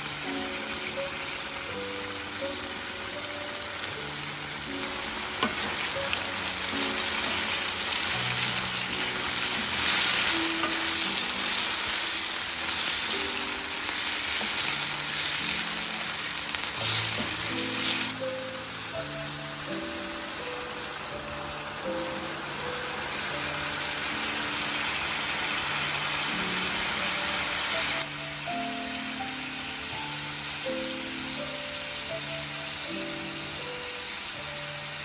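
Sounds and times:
quiet background music: 0:00.0 - 0:35.0
tofu sizzling in hot oil: 0:00.0 - 0:35.0
wooden spatula turning food: 0:04.9 - 0:18.2.

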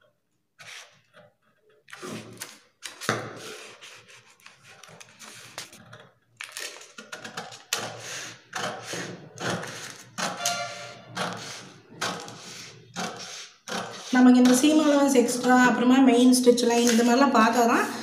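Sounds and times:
paper rustling: 0:01.9 - 0:05.8.

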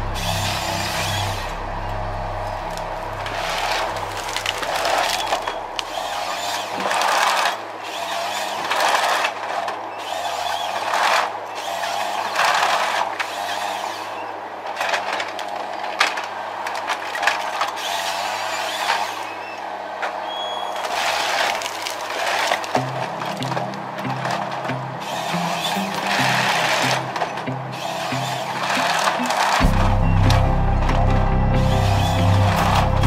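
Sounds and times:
harvester engine running: 0:00.0 - 0:33.0
branches cracking and snapping: 0:02.7 - 0:07.6, 0:20.8 - 0:29.7
harvester head rasping: 0:20.8 - 0:29.7.

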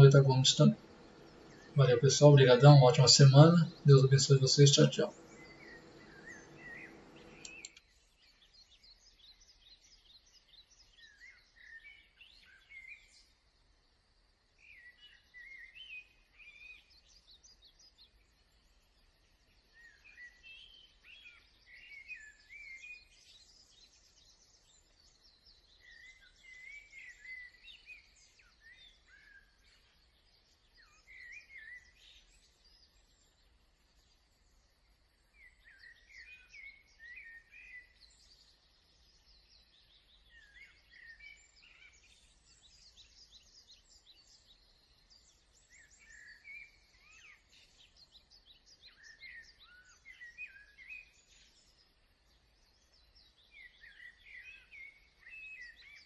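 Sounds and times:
faint steady hiss: 0:00.0 - 0:09.1
birds chirping and warbling: 0:00.0 - 0:13.3, 0:14.6 - 0:56.0.

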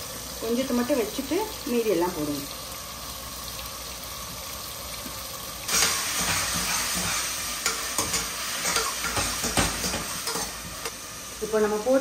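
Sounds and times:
masala sizzling in oil: 0:00.0 - 0:12.0
steel spoon scraping pan: 0:05.7 - 0:11.0.

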